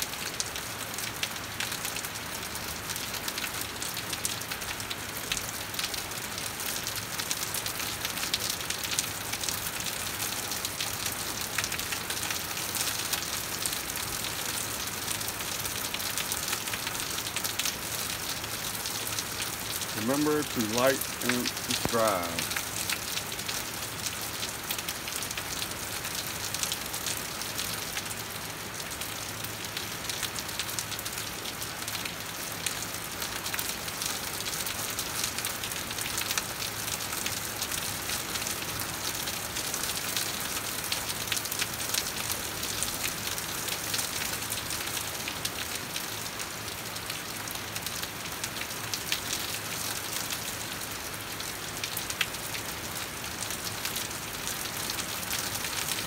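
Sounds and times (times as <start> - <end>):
steady rain falling: 0.0 - 56.0
raindrops clicking: 19.4 - 23.6.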